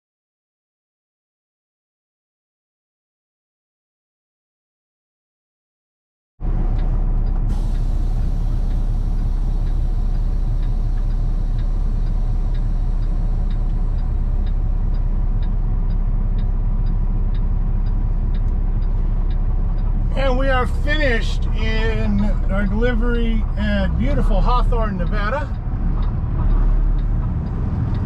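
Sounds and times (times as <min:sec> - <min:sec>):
diesel engine idling: 0:06.4 - 0:28.0
faint regular ticking: 0:06.5 - 0:28.0.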